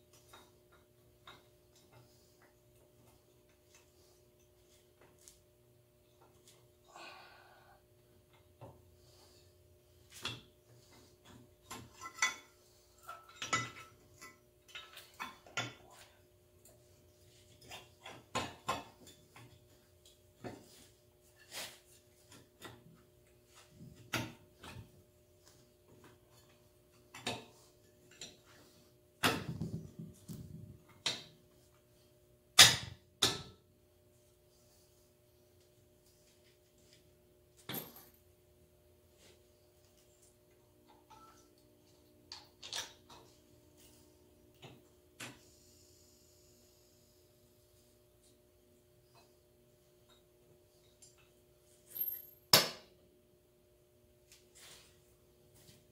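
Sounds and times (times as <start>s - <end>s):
metal clinks and knocks: 37.6s - 38.3s, 51.8s - 52.6s.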